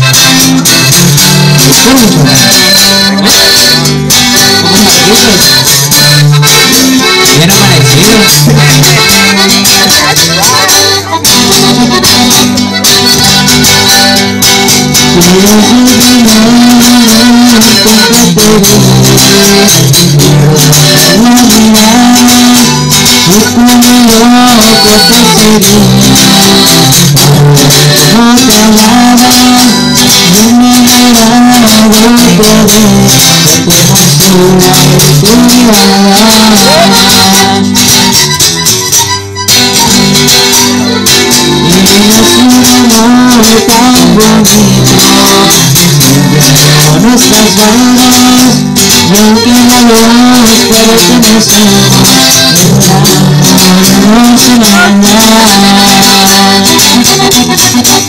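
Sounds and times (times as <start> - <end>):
live latin band playing: 0.0 - 58.0.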